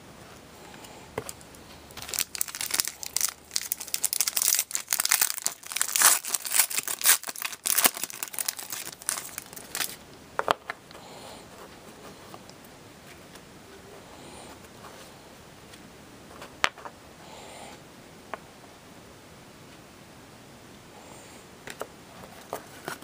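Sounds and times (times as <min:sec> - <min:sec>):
foil pack crinkling: 0:02.0 - 0:10.0.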